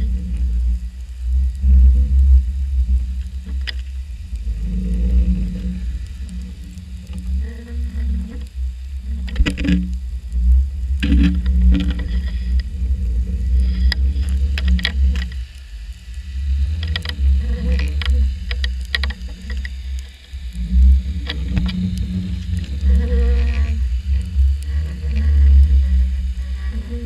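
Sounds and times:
faint hum: 0.0 - 27.0
low rumble of water moving: 0.0 - 27.0
sharp clicks and knocks: 9.2 - 9.8, 17.8 - 20.2.

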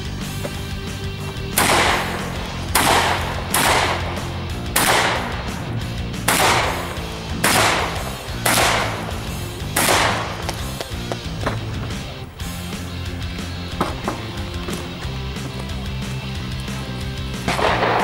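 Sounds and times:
background music: 0.0 - 18.0
shotgun shots echoing: 1.5 - 11.6, 17.2 - 18.0.

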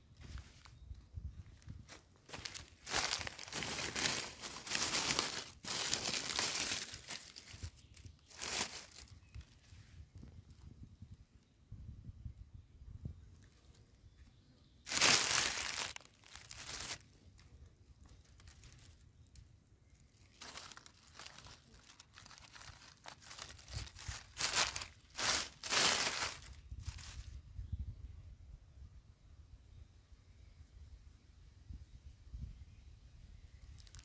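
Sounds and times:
dry leaves crackling and rustling: 1.7 - 9.5, 14.9 - 19.4, 20.0 - 27.3, 33.8 - 34.0.

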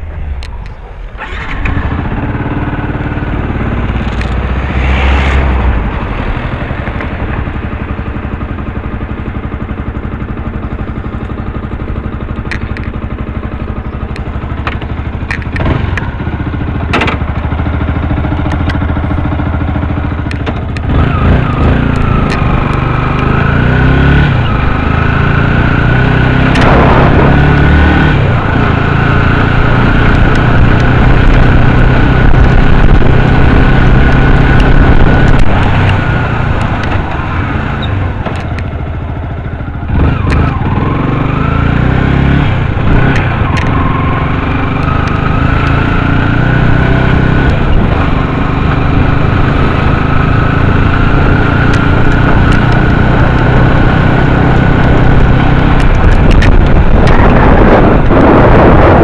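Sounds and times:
road noise: 0.0 - 59.0
vehicle engine running: 0.0 - 59.0
sharp clicks: 12.4 - 13.0, 14.0 - 16.1, 20.2 - 23.3, 40.0 - 40.6, 42.9 - 43.8, 55.6 - 57.3
high whine: 20.9 - 40.9.

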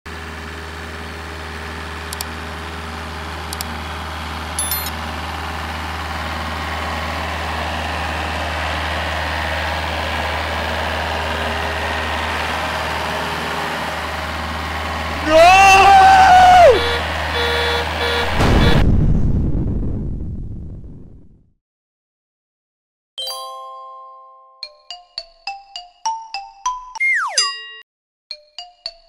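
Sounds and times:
car engine idling: 0.1 - 18.4.

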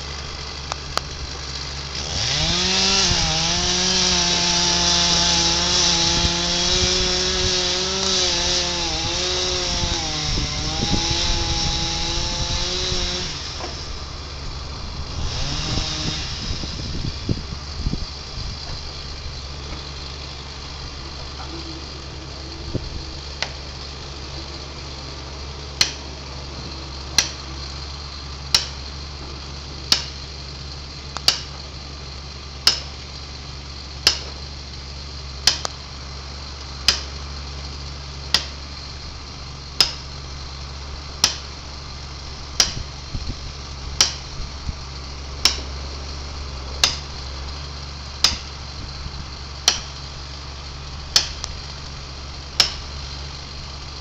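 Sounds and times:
low steady hum: 0.0 - 54.0
hammer driving a wedge: 25.8 - 26.1, 27.1 - 27.5, 28.5 - 28.9, 29.9 - 30.2, 31.2 - 31.7, 32.6 - 33.0, 34.0 - 34.4, 35.4 - 35.8, 36.8 - 37.2, 38.3 - 38.6, 39.8 - 40.2, 41.2 - 41.6, 42.6 - 42.9, 43.9 - 44.4, 45.4 - 45.8, 46.8 - 47.3, 48.2 - 48.6, 49.6 - 50.1, 51.1 - 51.7, 52.5 - 53.0.

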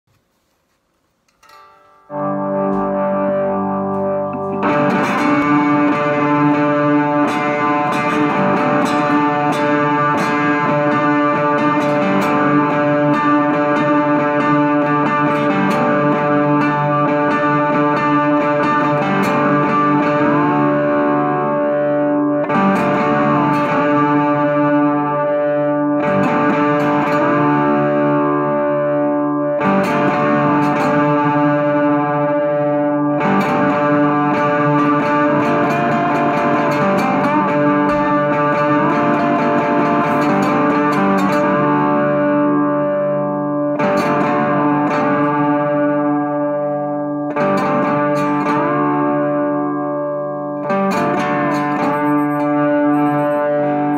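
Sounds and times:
amplified canjo droning riff: 1.3 - 53.9.

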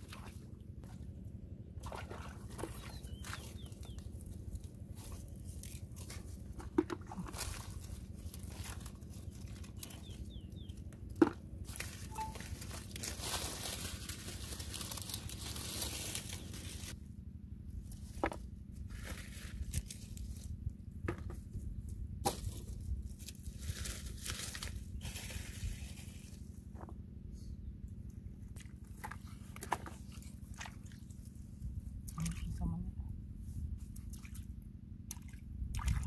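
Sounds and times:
leaves and dry brush rustling: 3.0 - 10.8, 11.6 - 17.0, 17.8 - 20.6, 22.3 - 26.5
steady low rumble: 31.1 - 36.0.

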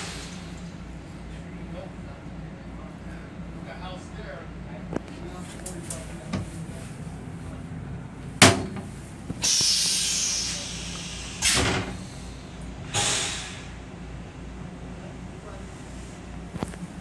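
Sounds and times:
toilet flushing with hissing rush: 0.0 - 0.7, 9.4 - 13.9.

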